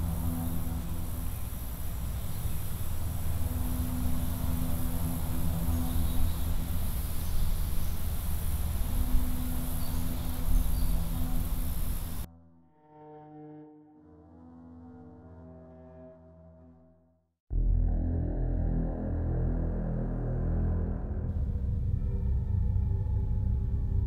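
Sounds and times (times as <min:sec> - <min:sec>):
high insect chirring: 0:00.0 - 0:12.3
low droning tone: 0:00.0 - 0:16.8, 0:17.5 - 0:24.0
low rumble: 0:17.5 - 0:24.0.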